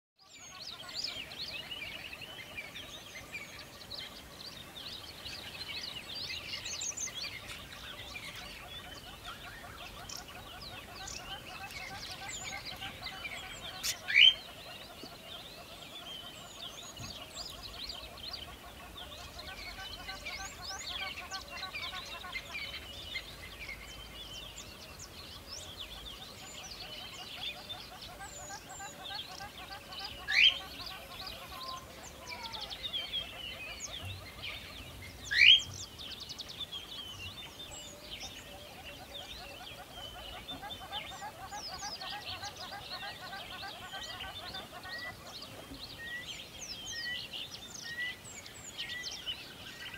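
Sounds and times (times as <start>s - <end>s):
parrots chattering and chirping: 8.2s - 14.9s, 27.8s - 34.6s.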